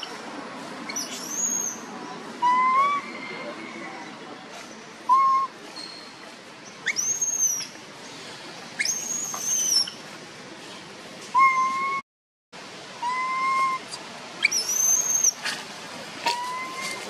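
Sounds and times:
high-pitched monkey calls: 0:00.9 - 0:03.5, 0:05.1 - 0:06.1, 0:06.8 - 0:07.8, 0:08.8 - 0:10.0, 0:11.3 - 0:12.0, 0:13.0 - 0:15.5, 0:16.2 - 0:17.0
baby macaque cooing: 0:13.0 - 0:15.4, 0:16.3 - 0:17.0.

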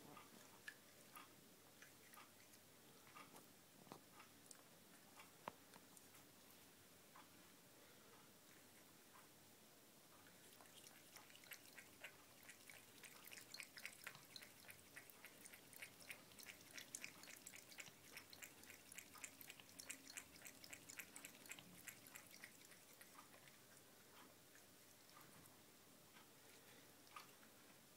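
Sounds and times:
cat lapping water: 0:00.6 - 0:03.2, 0:10.2 - 0:25.5.

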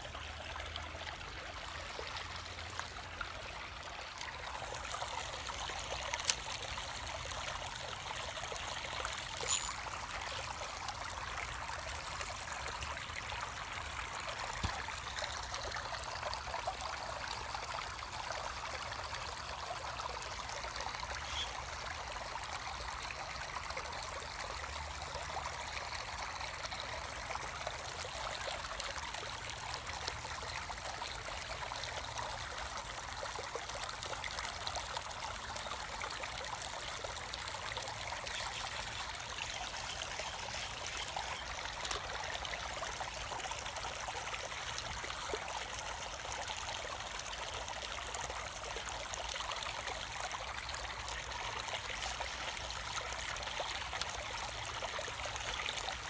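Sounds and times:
creek water trickling over rocks: 0:00.0 - 0:56.0.

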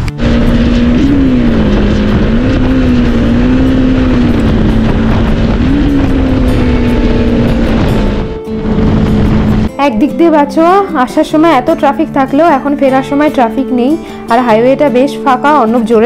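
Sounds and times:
motorcycle engine running: 0:00.0 - 0:09.7
heavy low rush: 0:00.0 - 0:09.8.

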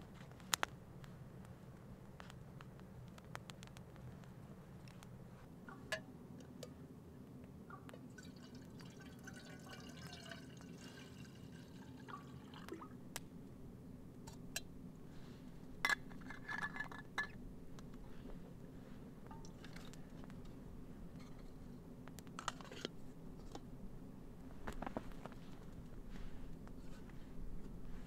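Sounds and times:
hot drink pouring into cup: 0:08.1 - 0:13.0.

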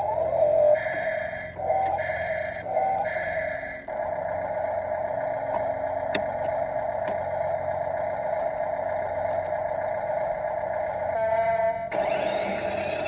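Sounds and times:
small electric motor whirring: 0:10.9 - 0:13.0.

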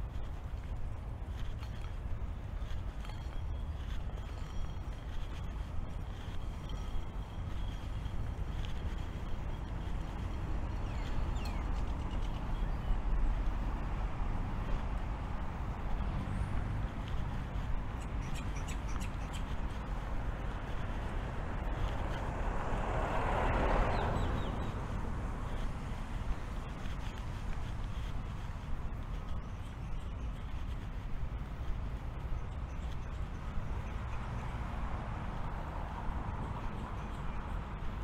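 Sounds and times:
distant traffic rumble: 0:00.0 - 0:38.0
bird chirps: 0:06.2 - 0:13.1, 0:18.0 - 0:19.6.

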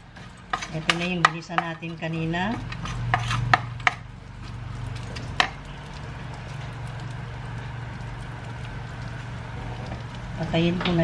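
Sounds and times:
bacon sizzling in a frying pan: 0:00.0 - 0:11.0
low steady hum: 0:00.0 - 0:11.0.

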